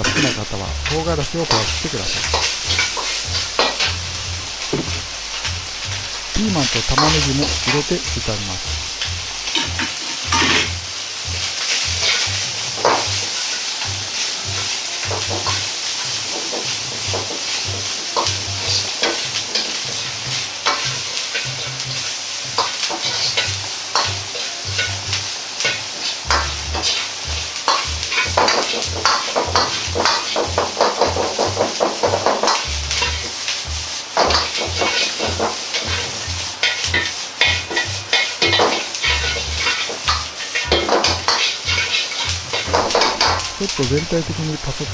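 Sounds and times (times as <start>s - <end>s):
food sizzling in a wok: 0.0s - 44.9s
metal ladle scraping: 1.5s - 7.9s, 8.5s - 10.8s, 34.8s - 43.7s
ladle clacking against wok: 22.5s - 33.6s, 34.2s - 43.6s.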